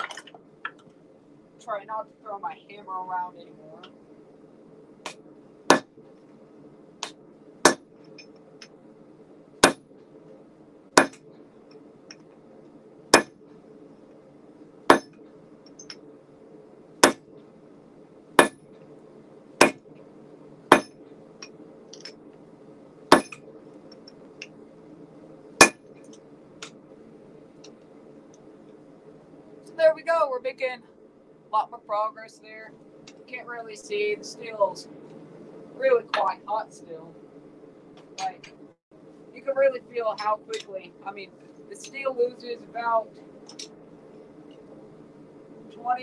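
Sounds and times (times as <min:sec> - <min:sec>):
forge burner roaring: 0:00.0 - 0:46.0
hammer striking steel on anvil: 0:09.6 - 0:09.8, 0:11.0 - 0:11.2, 0:13.2 - 0:13.4, 0:14.9 - 0:15.2, 0:18.4 - 0:18.6, 0:20.7 - 0:21.0, 0:23.1 - 0:23.4, 0:25.6 - 0:25.8.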